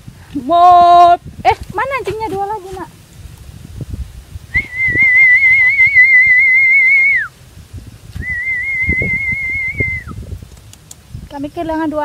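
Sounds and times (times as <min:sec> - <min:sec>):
person whistling: 0:04.5 - 0:07.3, 0:08.2 - 0:10.2.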